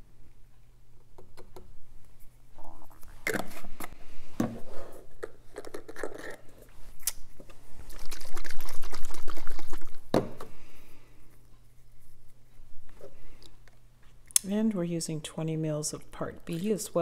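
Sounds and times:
liquid trickling into a jug: 7.9s - 10.0s.

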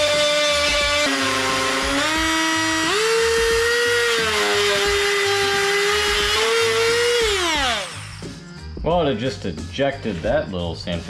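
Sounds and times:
rotary tool sanding steel: 0.0s - 8.3s.

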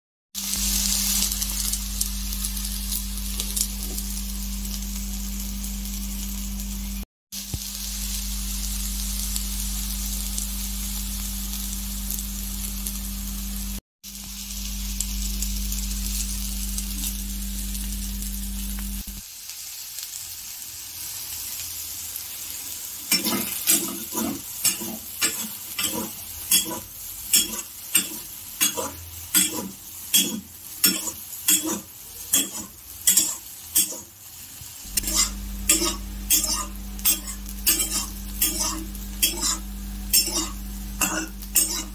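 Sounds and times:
food sizzling in a pan: 0.3s - 41.9s
gas flame low hum: 0.4s - 19.2s, 34.9s - 41.9s
metal spatula scraping pan: 23.1s - 34.1s, 34.9s - 41.9s.

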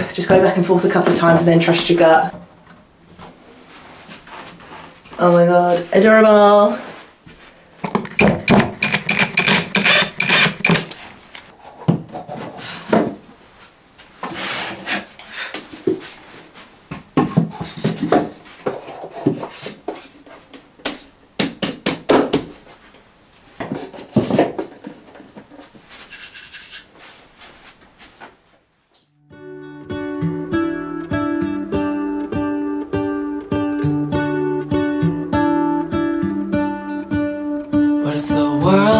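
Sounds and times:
screwdriver scraping screw: 8.0s - 11.0s
wooden shelves knocking and scraping: 11.8s - 13.3s, 16.9s - 20.1s, 23.6s - 25.8s.

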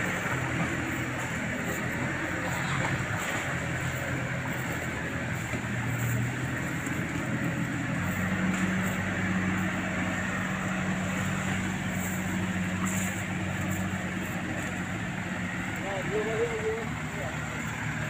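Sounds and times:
heavy engines running: 0.0s - 18.0s.

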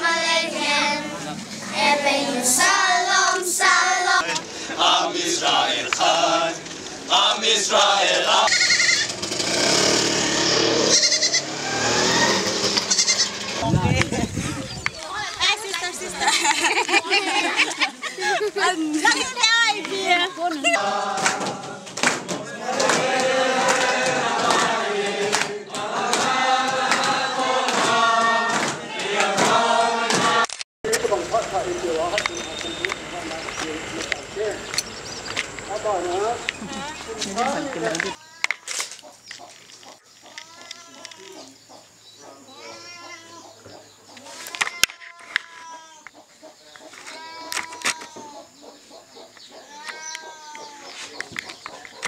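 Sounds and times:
group of voices singing: 0.0s - 8.9s, 19.2s - 30.5s.

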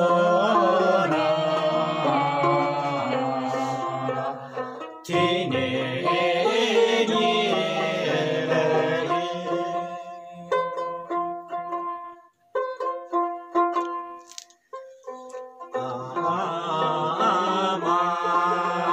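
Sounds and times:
voices singing: 0.0s - 10.6s, 15.7s - 18.9s
plucked string instrument notes: 0.0s - 18.9s.

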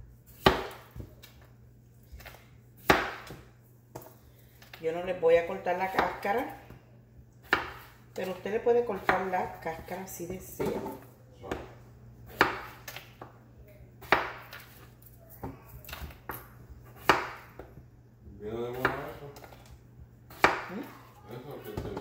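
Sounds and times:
knife chopping on wooden board: 0.3s - 1.2s, 2.2s - 4.1s, 7.4s - 8.0s, 8.9s - 10.0s, 10.6s - 13.3s, 14.0s - 14.8s, 15.4s - 17.7s, 18.7s - 19.6s, 20.3s - 20.7s.

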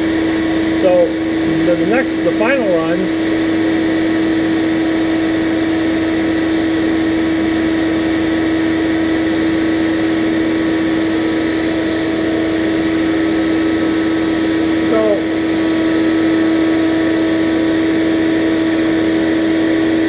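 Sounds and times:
steady machine hum: 0.0s - 20.0s.

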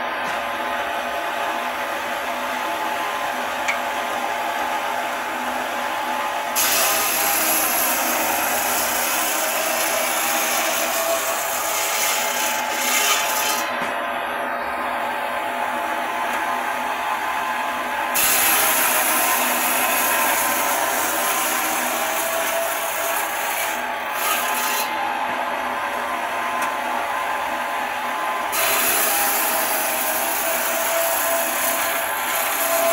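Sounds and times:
machine running hum: 0.0s - 32.8s
saw grinding through stone: 6.6s - 13.9s, 18.1s - 24.9s, 28.5s - 32.9s.

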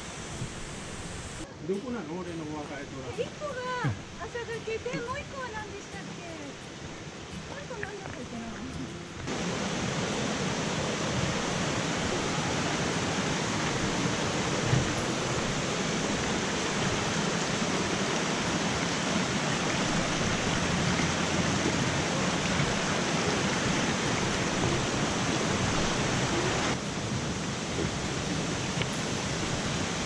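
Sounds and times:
stream rushing over rocks: 0.0s - 30.0s.

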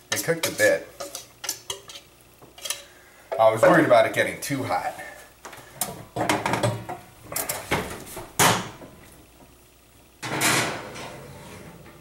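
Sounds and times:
oven rack sliding clatter: 10.2s - 12.0s.

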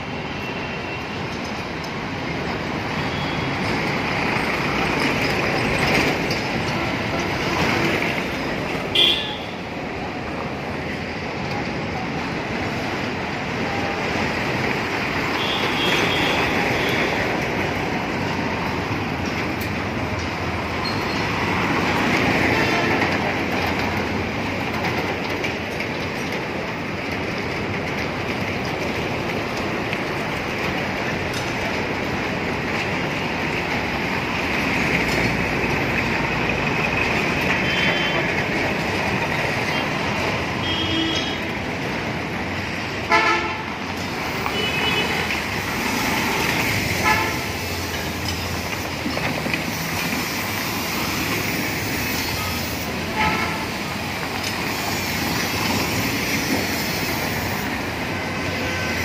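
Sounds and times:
road traffic: 0.0s - 59.0s
vehicle horn toots: 8.9s - 9.5s, 40.6s - 41.4s.

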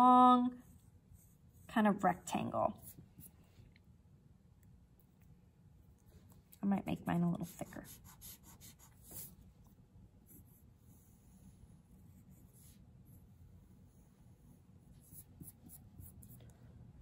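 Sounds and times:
pencil scratching on paper: 7.2s - 16.5s.

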